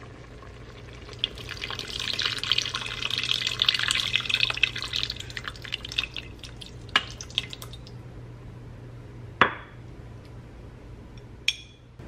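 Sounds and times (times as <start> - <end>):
liquid pouring into a pot: 0.0 - 8.0.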